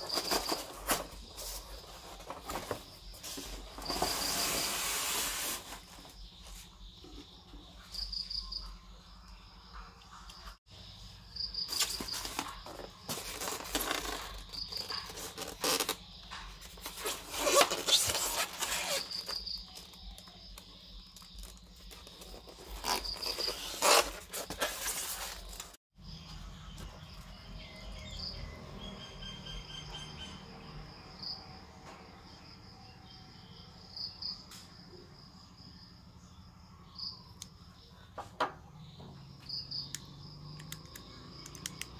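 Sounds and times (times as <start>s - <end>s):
packaging rustling and scraping: 0.0s - 6.7s, 11.7s - 25.8s
crickets chirping: 0.0s - 41.9s.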